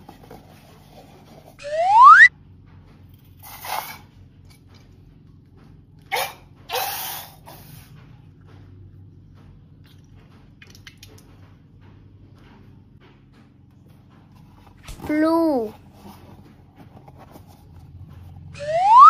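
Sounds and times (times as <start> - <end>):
rising whistle sound effect: 1.6 - 2.3, 18.6 - 19.0.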